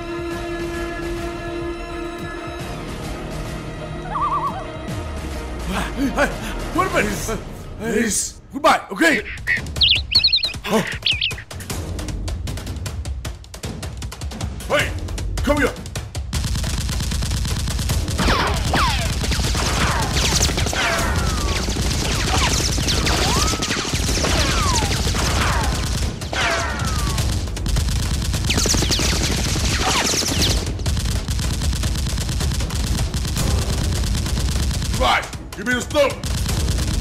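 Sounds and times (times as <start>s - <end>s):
falling whistles: 9.3s - 11.6s
automatic gunfire: 16.3s - 35.4s, 36.2s - 37.0s.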